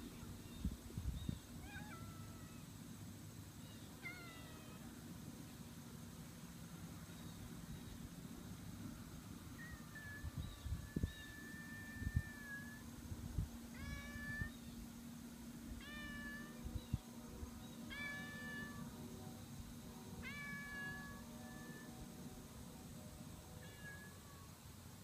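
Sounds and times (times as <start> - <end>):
cat meowing: 15.8 - 16.6, 20.2 - 21.9.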